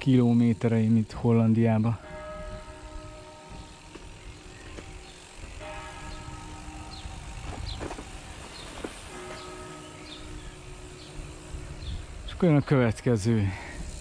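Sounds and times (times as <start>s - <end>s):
humming drone of stacked tones: 1.6s - 12.7s
wind rumbling on microphone: 2.0s - 9.1s, 10.0s - 12.4s.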